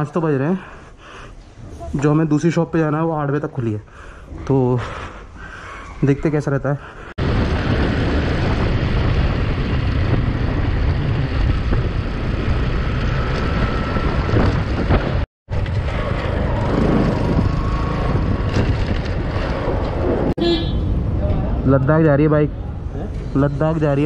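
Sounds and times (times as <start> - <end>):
wind and road noise: 6.8 - 24.0.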